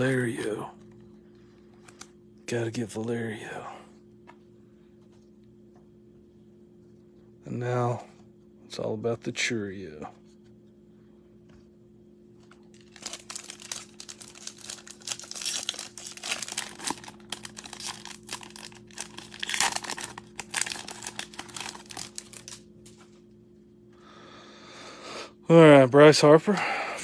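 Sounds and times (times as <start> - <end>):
foil wrapper tearing and crinkling: 12.6 - 23.0.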